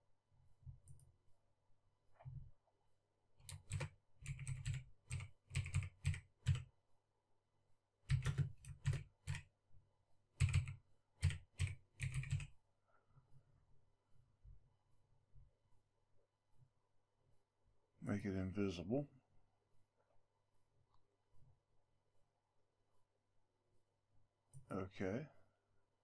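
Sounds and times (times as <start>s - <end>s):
typing on computer keyboard: 3.4s - 6.7s, 8.1s - 9.5s, 10.4s - 12.5s.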